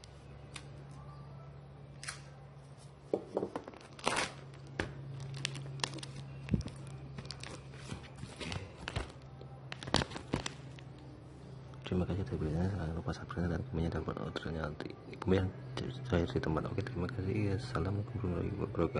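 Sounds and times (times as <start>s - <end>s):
steady low hum: 0.0s - 18.9s
packing material tearing and crinkling: 3.6s - 11.1s.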